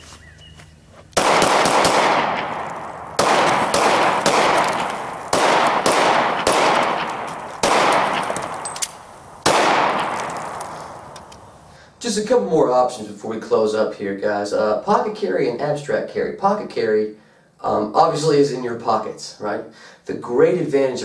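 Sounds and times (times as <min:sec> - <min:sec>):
pistol shots echoing: 0:01.2 - 0:11.4.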